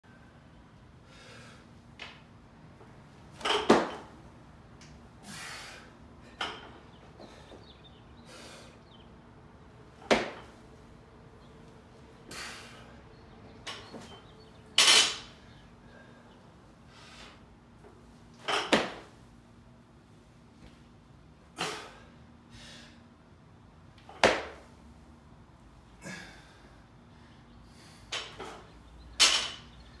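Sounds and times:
short hard breaths: 12.3s - 13.0s.

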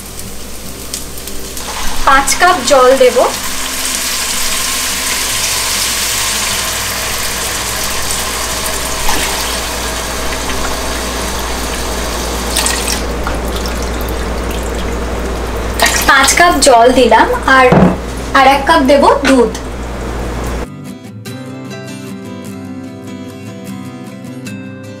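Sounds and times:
water pouring and hissing: 0.0s - 16.2s.

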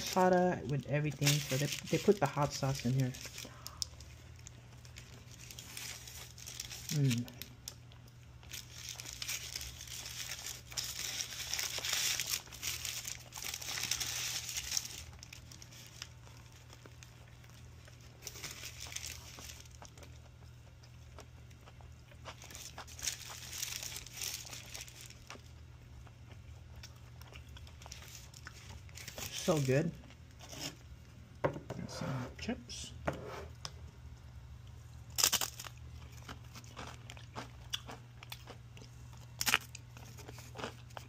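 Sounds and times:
paper wrapper crinkling: 0.0s - 20.1s, 22.3s - 25.5s, 27.5s - 30.8s.

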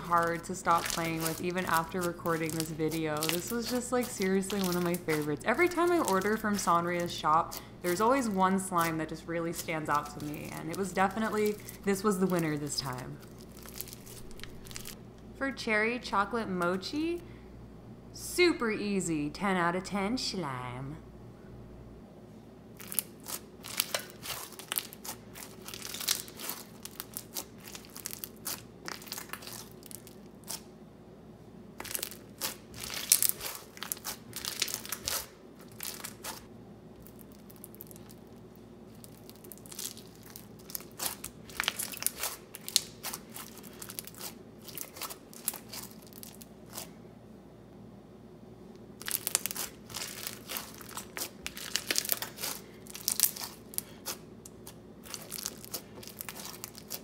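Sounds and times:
bead slime crackling and popping: 0.0s - 9.0s, 13.2s - 15.0s, 22.8s - 30.7s, 31.8s - 46.9s, 49.0s - 57.0s.

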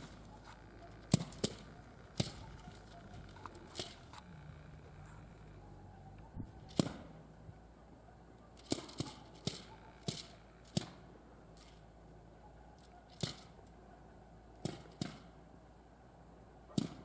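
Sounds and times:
sharp cracks: 0.0s - 4.3s, 6.3s - 7.1s, 8.6s - 11.8s, 12.8s - 13.8s, 14.6s - 15.4s, 16.8s - 17.0s.

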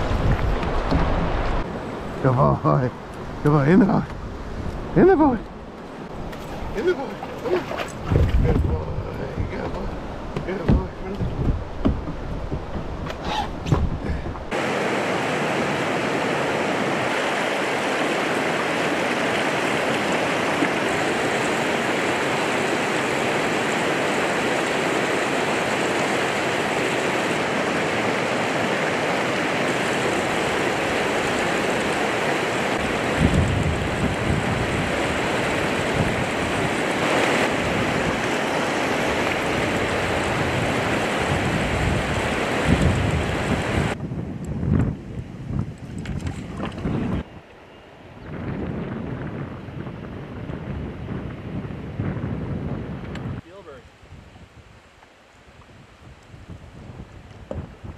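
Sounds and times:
wind buffeting microphone: 0.0s - 57.9s
river rapids rushing: 14.5s - 44.0s.

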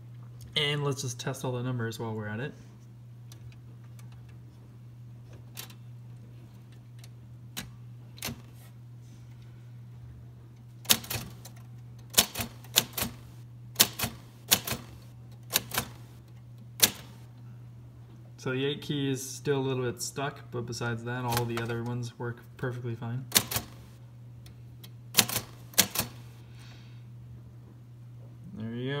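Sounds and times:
typewriter typebar strikes: 10.9s - 11.5s, 12.1s - 16.1s, 16.8s - 17.2s, 23.3s - 23.9s, 25.2s - 26.4s.

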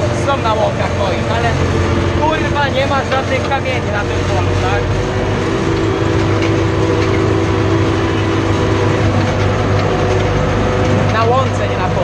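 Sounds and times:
clattering rattle of implement: 0.0s - 12.0s
tractor engine running: 0.0s - 12.0s.

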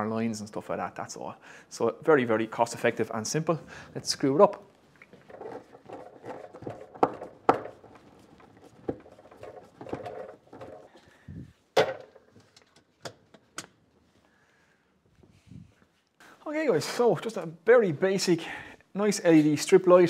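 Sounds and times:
plastic knocks and clicks on wood: 5.3s - 7.9s.

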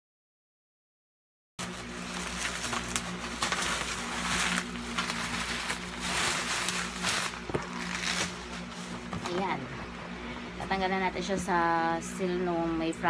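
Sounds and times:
bubble wrap rustling and crinkling: 1.6s - 9.4s
steady low hum: 1.6s - 13.0s.

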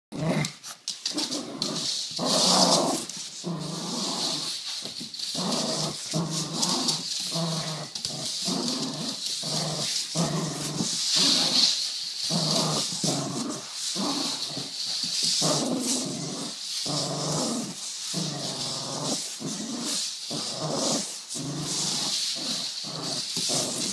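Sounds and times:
small dog growling: 0.1s - 4.6s, 5.2s - 23.9s.

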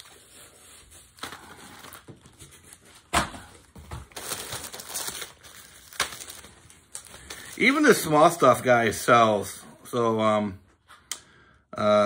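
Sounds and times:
packaging crinkling and rustling: 0.0s - 8.6s.

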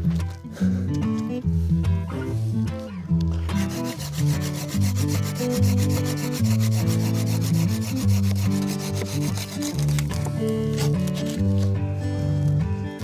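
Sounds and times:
background music with low notes: 0.0s - 13.0s
hand saw rasping through wood: 3.5s - 10.2s, 10.8s - 11.4s.

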